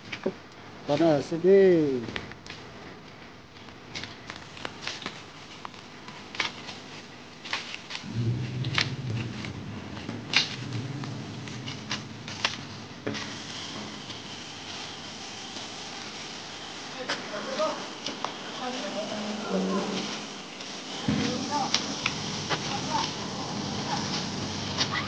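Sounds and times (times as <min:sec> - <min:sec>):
low hum: 0:08.0 - 0:14.5.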